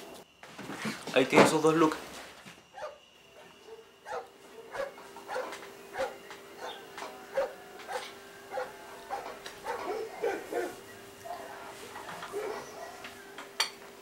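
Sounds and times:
dog barking: 2.7 - 13.2.

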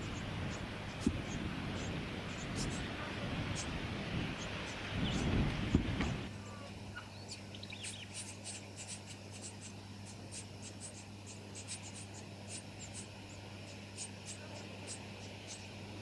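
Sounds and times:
steady low hum: 0.0 - 16.0
nestlings begging squeaks: 0.1 - 2.8, 3.5 - 3.8, 6.9 - 15.8.

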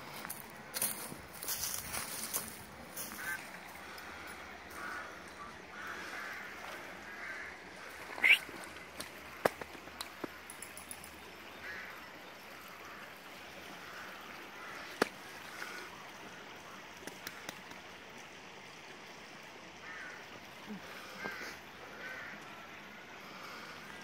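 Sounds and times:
steady woodland hiss: 0.0 - 24.0
faint short calls: 8.0 - 8.7.

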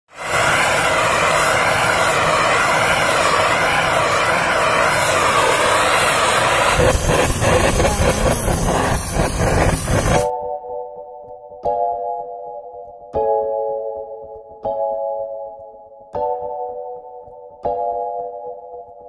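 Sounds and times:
blowtorch flame rushing: 0.1 - 10.3.

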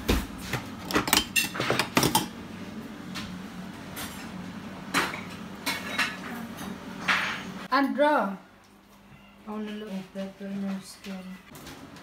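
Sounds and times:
kitchen utensils clinking: 0.8 - 2.4, 4.0 - 7.7.

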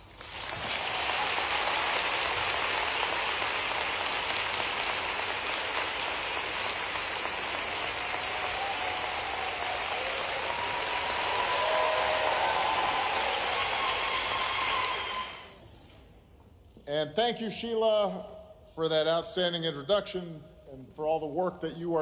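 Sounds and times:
large audience applauding: 0.0 - 15.6.

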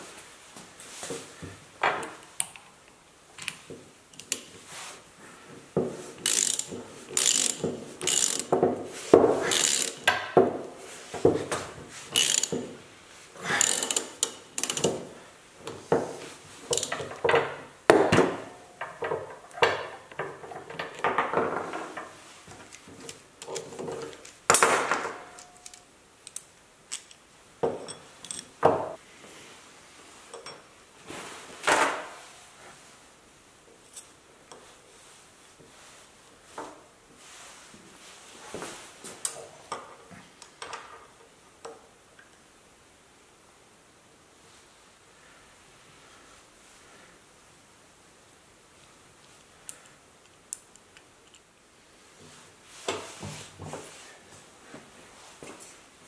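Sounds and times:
ratchet wrench clicking: 6.2 - 8.5, 9.5 - 10.1, 12.2 - 12.6, 13.6 - 14.9, 16.7 - 16.9.

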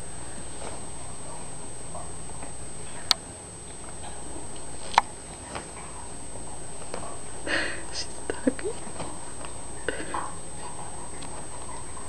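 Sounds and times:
blanket rustle: 0.0 - 1.6
steady hiss: 0.0 - 12.0.

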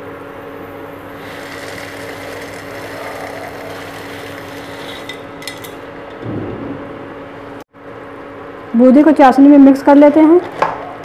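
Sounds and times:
steady hum: 0.6 - 8.6
fried snacks pouring into syrup: 1.2 - 5.2
spatula stirring and scraping: 1.2 - 5.7
loud knock: 6.2 - 7.1.

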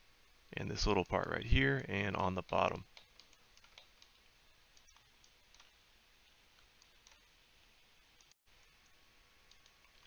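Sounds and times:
faint room hiss: 0.0 - 10.0
soft computer mouse clicks: 2.4 - 5.7, 6.6 - 7.3, 9.5 - 10.0.

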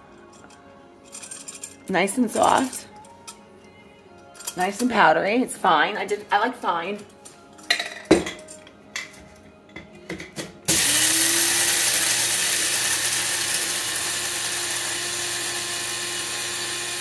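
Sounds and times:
coffee grinder motor whirring: 10.7 - 17.0.

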